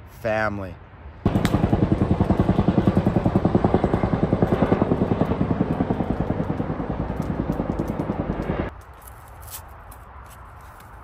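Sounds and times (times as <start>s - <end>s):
helicopter rotor beating: 1.3s - 8.7s.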